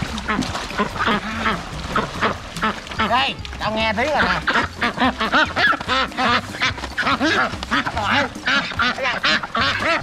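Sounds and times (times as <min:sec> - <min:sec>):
ducks quacking: 0:00.0 - 0:10.0.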